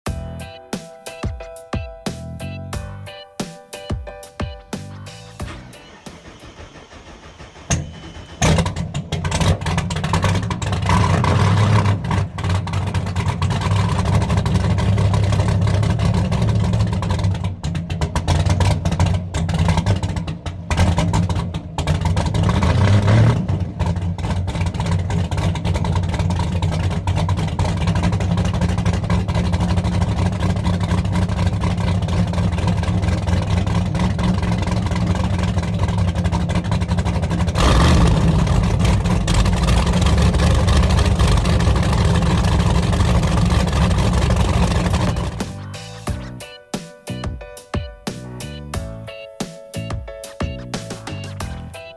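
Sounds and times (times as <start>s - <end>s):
outboard engine idling: 4.8s - 11.0s, 11.8s - 46.4s.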